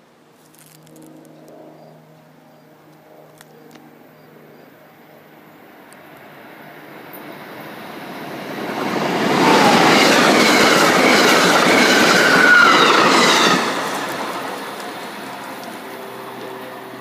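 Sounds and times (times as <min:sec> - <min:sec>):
train wheels rushing on rails: 0:05.9 - 0:17.0.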